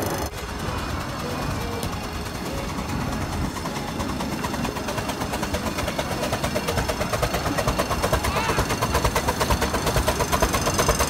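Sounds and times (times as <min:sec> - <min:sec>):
rapid regular train beat: 0:00.0 - 0:11.0
steam train rumbling: 0:00.0 - 0:11.0.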